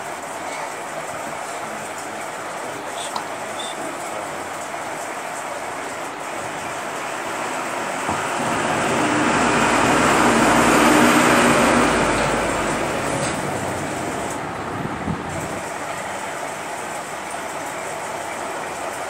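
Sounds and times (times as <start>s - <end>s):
rushing rumble: 6.1s - 17.6s.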